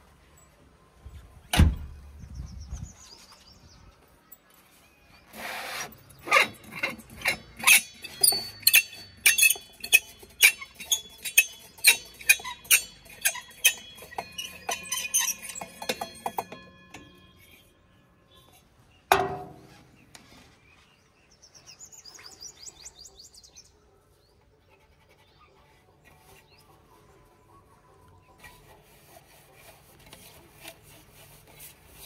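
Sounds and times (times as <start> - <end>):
rhythmic chime-like clinking: 11.3 - 17.7.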